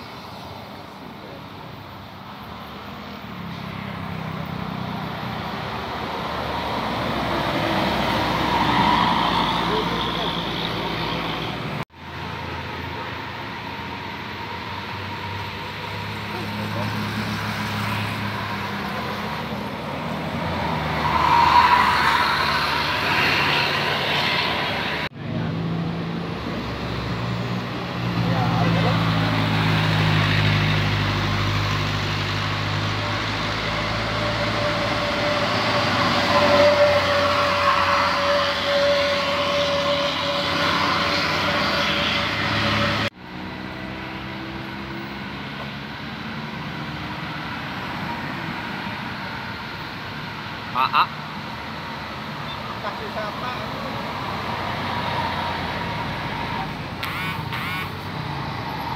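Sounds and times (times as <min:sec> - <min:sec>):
bus passing close by: 0:00.0 - 0:58.9
low engine drone of traffic: 0:00.0 - 0:58.9.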